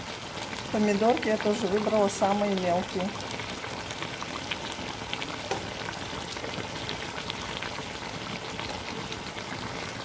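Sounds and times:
food frying in a pot: 0.0 - 10.0.

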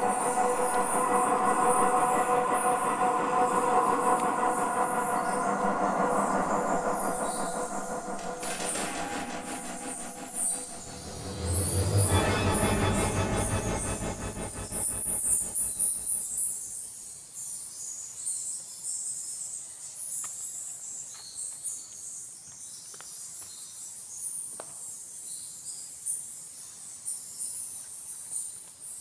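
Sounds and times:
multi-tone sound: 0.0 - 16.4.

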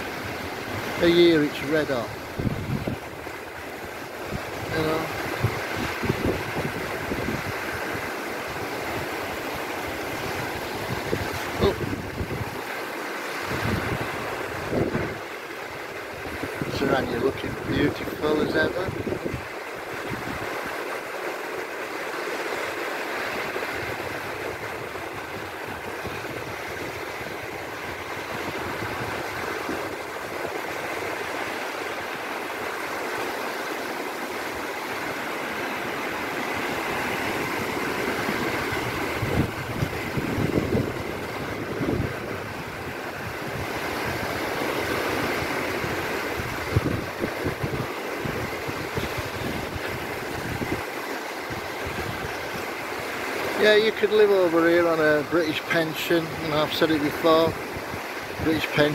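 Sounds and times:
small waves washing over shallows: 0.0 - 58.9
wind thumping on microphone: 2.1 - 12.8, 13.4 - 17.8, 18.6 - 20.8, 23.4 - 31.6, 34.4 - 53.6, 57.5 - 58.9.

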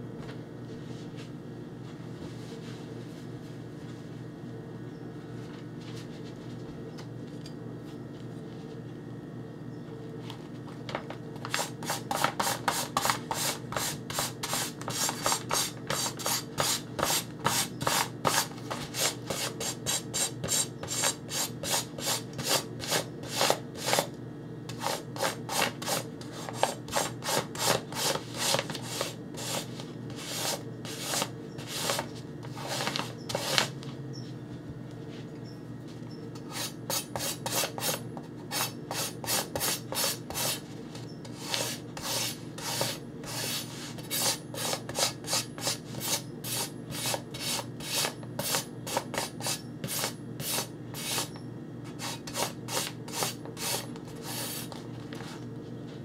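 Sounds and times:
knife stropping on newspaper: 24.7 - 33.7.

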